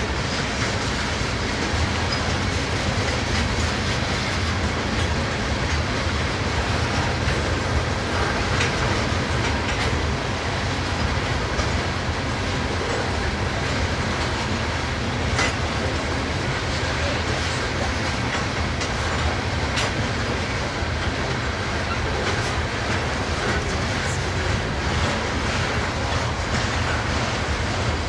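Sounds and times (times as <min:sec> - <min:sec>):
steel wheels rumbling on rails: 0:00.0 - 0:28.0.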